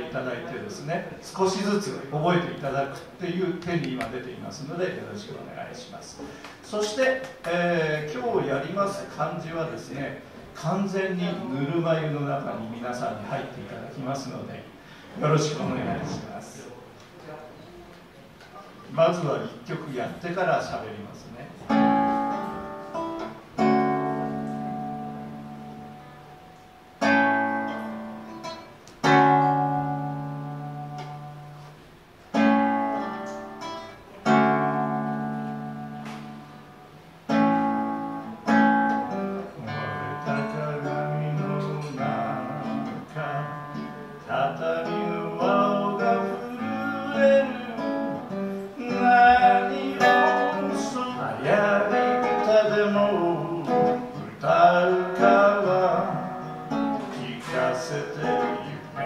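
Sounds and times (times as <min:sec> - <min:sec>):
acoustic guitar strumming: 0:21.6 - 0:59.0
man singing: 0:39.6 - 0:59.0.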